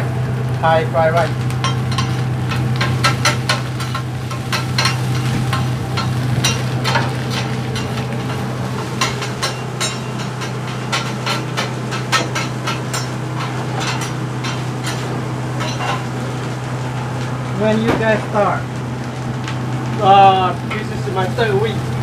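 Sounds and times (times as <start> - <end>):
steady low hum: 0.0 - 22.0
metal spatulas scraping griddle: 1.9 - 16.2.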